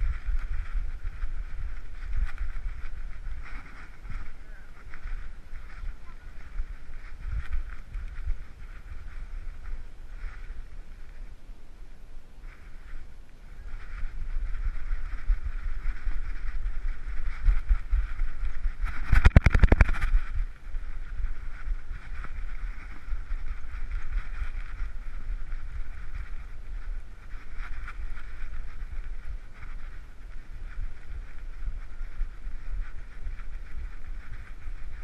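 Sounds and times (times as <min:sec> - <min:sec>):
steady hiss: 0:00.0 - 0:35.0
camera housing rubbing and thumping: 0:18.9 - 0:20.3.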